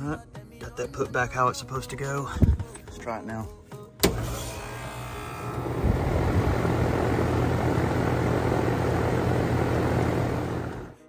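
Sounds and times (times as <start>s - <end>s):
air conditioner whining: 4.0s - 11.0s
electrical hum: 4.1s - 11.0s
fan air rushing: 5.6s - 10.9s.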